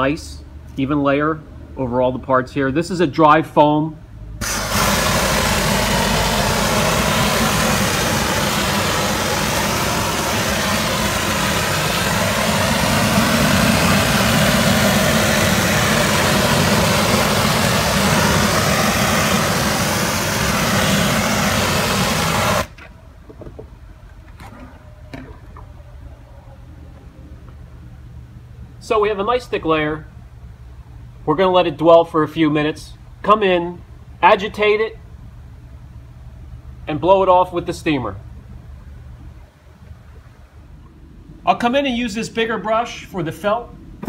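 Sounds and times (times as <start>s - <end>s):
foam sprayer hissing: 4.4s - 22.8s.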